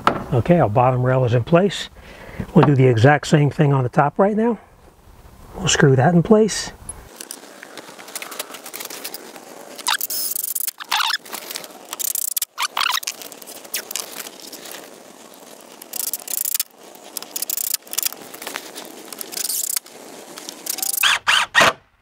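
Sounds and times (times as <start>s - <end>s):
cordless driver driving screws: 20.6s - 21.8s.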